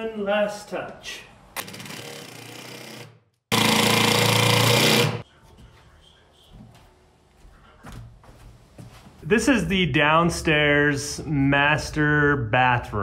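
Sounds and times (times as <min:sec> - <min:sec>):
cordless impact driver running: 0:01.6 - 0:05.2.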